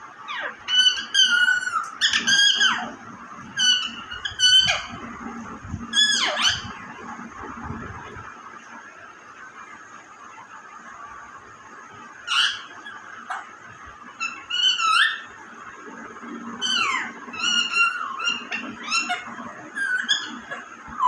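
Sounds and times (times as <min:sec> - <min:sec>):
parakeet squawking calls: 0:00.3 - 0:03.0, 0:03.6 - 0:05.0, 0:05.9 - 0:06.8, 0:12.3 - 0:13.5, 0:14.2 - 0:15.3, 0:16.6 - 0:21.0.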